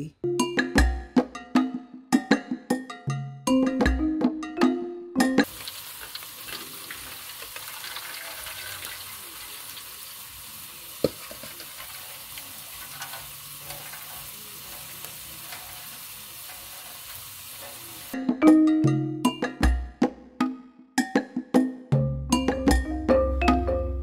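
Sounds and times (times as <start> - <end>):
curry sizzling in a pan: 5.4 - 18.2.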